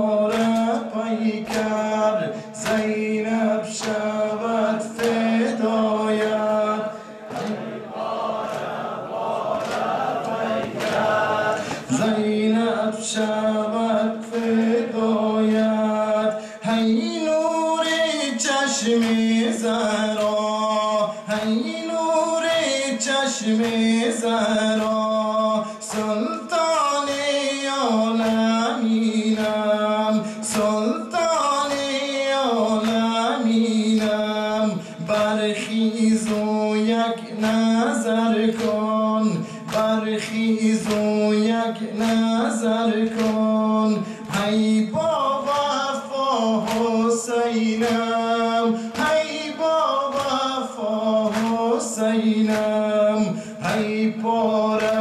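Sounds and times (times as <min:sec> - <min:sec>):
men chanting together: 0:00.0 - 0:55.0
chest-beating slaps: 0:07.3 - 0:07.6, 0:43.1 - 0:43.4.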